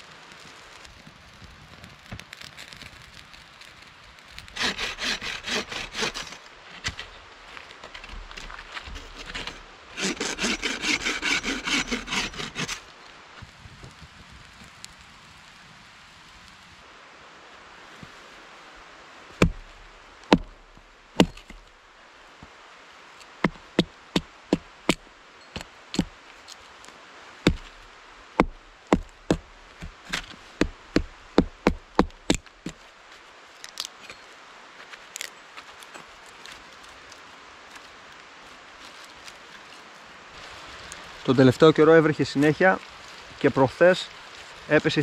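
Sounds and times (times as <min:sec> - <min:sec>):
wood being chopped: 0:19.4 - 0:21.7, 0:25.6 - 0:26.2, 0:27.4 - 0:27.8, 0:28.4 - 0:32.8.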